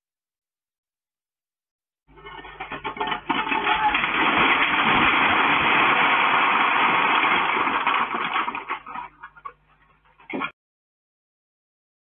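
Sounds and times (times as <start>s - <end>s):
earthquake shaking rattle: 2.1s - 10.3s
wooden building collapsing: 2.1s - 10.5s.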